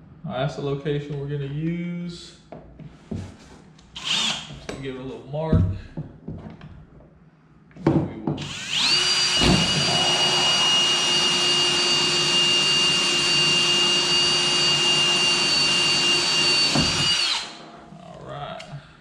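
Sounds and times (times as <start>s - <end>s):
drill whining through plastic: 4.0s - 4.5s, 8.4s - 17.8s.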